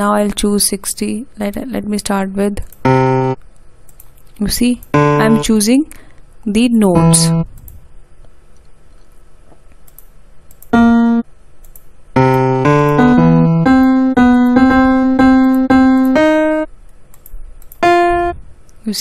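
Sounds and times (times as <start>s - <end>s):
short piano notes: 2.8s - 3.4s, 4.9s - 5.5s, 10.7s - 11.2s, 12.2s - 16.7s, 17.8s - 18.4s.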